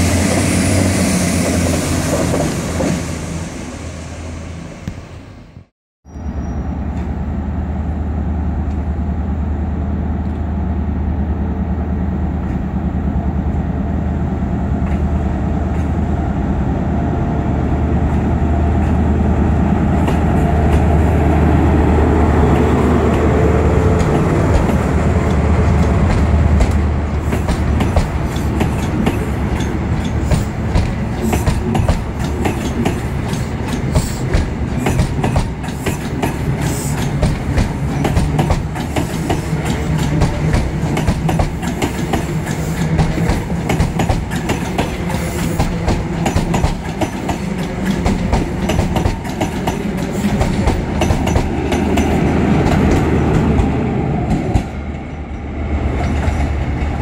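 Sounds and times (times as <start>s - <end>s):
diesel train engine hum: 0.0s - 57.0s
train wheels clicking over rail joints: 22.5s - 57.0s.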